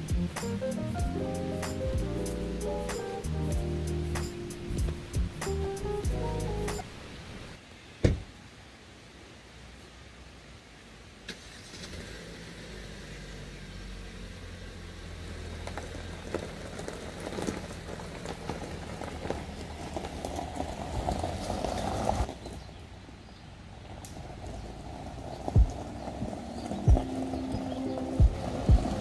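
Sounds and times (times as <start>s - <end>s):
car engine starting and running: 11.2s - 22.3s, 24.1s - 29.0s
tyres crunching on gravel: 15.1s - 22.9s, 23.8s - 29.0s.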